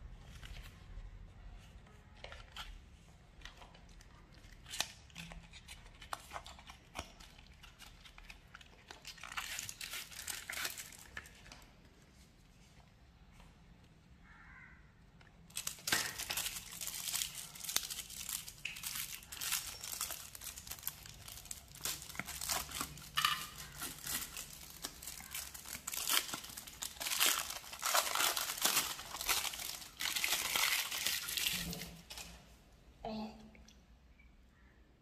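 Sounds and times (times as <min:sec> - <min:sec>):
foil wrapper crinkling: 0:04.4 - 0:11.7, 0:15.5 - 0:32.4.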